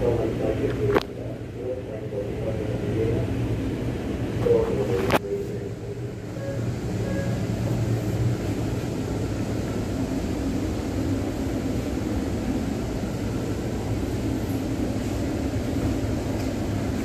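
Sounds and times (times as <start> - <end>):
train car air-conditioning hum: 0.0 - 17.0.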